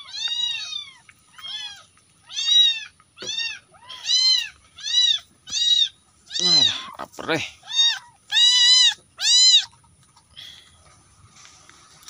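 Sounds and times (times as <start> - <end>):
kitten meowing: 0.0 - 7.0.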